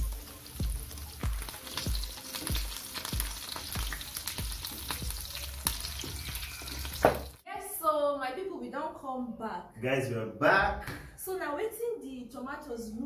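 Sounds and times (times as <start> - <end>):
bass drum beat music: 0.0 - 7.4
meat sizzling in hot oil: 0.0 - 7.4.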